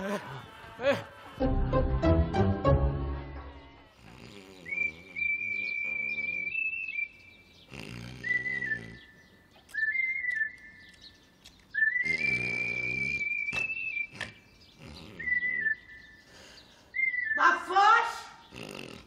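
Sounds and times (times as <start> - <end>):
man snoring with whistle: 4.0 - 6.7, 7.6 - 9.2, 11.8 - 16.6, 18.5 - 19.0.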